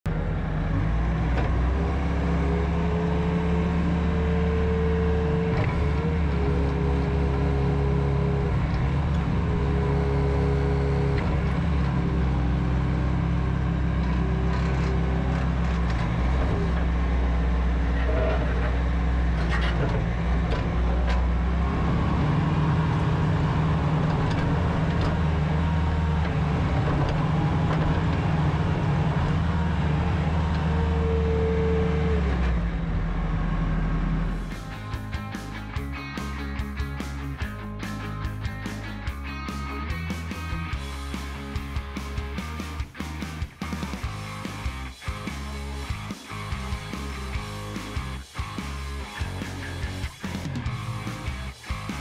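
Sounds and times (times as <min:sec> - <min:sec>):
diesel engine running under load: 0:00.1 - 0:52.0.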